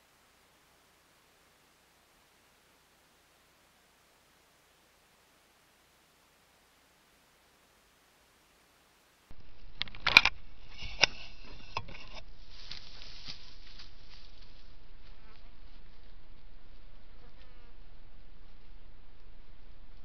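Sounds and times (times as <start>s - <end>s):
faint camera hiss: 0.0s - 11.3s.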